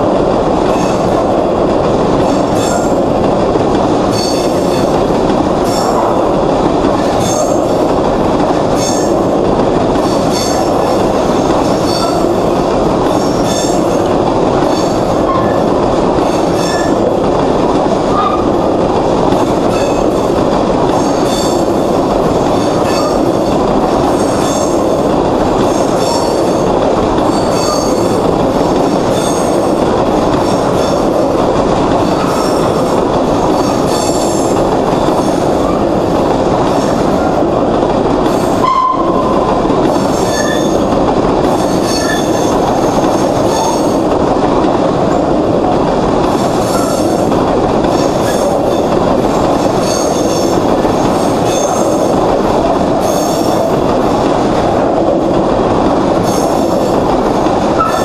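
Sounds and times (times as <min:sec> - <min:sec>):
train wheels rumbling on rail: 0:00.0 - 0:58.0
wheel squeaks and clicks: 0:40.1 - 0:40.8, 0:41.6 - 0:42.6.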